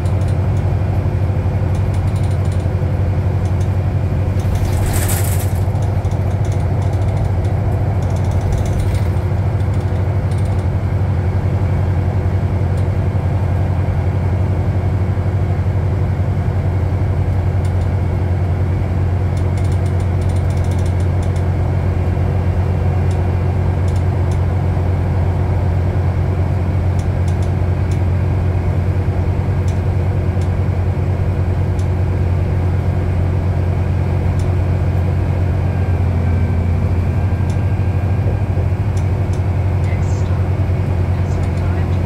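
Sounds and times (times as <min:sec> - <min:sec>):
light rattling clicks: 0:00.0 - 0:00.6, 0:01.7 - 0:02.7, 0:03.4 - 0:10.7, 0:19.4 - 0:21.4
bus engine drone: 0:00.0 - 0:42.0.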